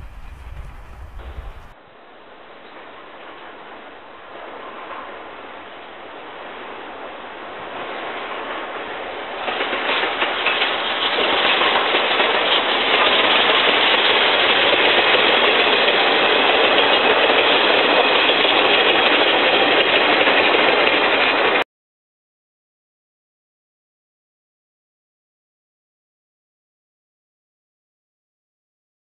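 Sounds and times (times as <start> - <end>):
train wheels clattering over rails: 0.0 - 1.8, 6.4 - 21.6.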